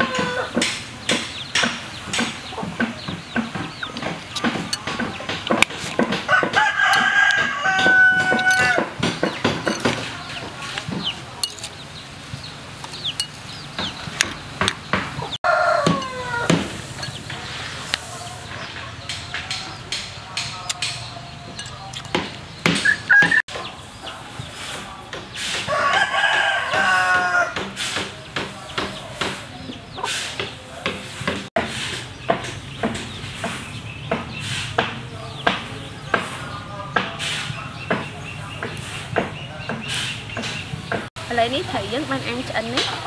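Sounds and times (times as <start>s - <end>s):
rooster crowing: 0.0s - 0.6s, 6.3s - 8.9s, 15.4s - 16.6s, 25.7s - 27.6s
metal spoon clinking on ceramic bowl: 13.1s - 13.4s, 21.5s - 22.1s.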